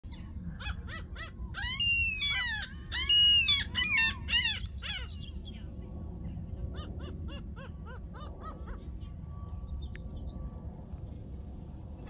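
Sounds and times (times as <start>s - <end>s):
low steady rumble: 0.0s - 12.0s
gulls calling: 0.1s - 5.8s, 6.6s - 9.6s.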